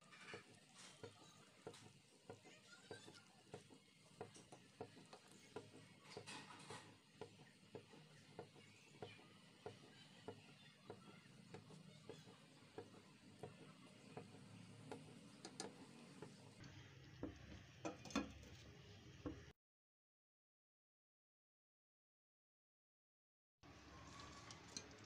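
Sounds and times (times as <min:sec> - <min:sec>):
spoon stirring thick mixture: 0:00.0 - 0:19.5, 0:23.7 - 0:25.0
spoon knocking against pot: 0:00.1 - 0:16.4, 0:17.2 - 0:18.4.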